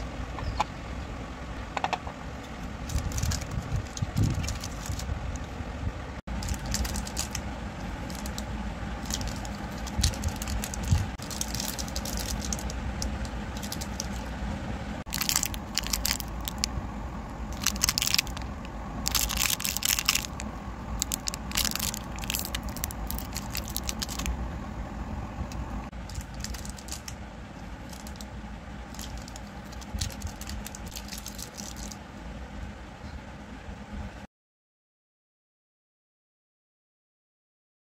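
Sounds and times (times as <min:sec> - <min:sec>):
plastic wrappers crinkling: 0:02.8 - 0:05.1, 0:06.3 - 0:14.3, 0:15.1 - 0:16.7, 0:17.5 - 0:24.3, 0:25.9 - 0:28.3, 0:28.9 - 0:32.0.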